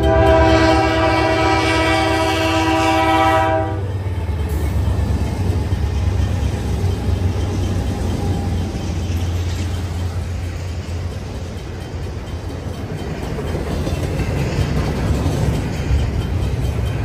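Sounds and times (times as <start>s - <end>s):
freight train rumbling on rails: 0.0s - 17.0s.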